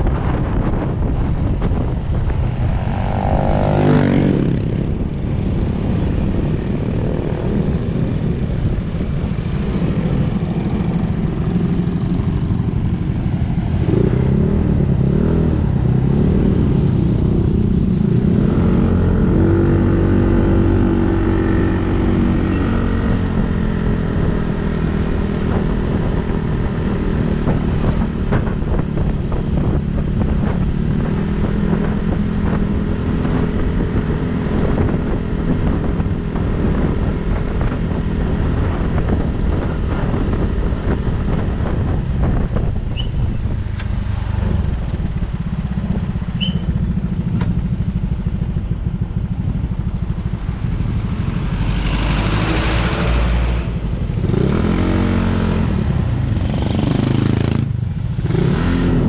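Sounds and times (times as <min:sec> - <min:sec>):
vehicle engine running: 0:43.4 - 0:59.0.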